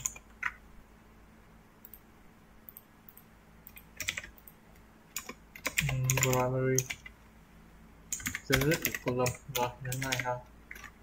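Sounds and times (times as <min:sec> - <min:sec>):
computer keyboard keystrokes: 0:00.0 - 0:00.6, 0:02.7 - 0:07.1, 0:08.1 - 0:11.0.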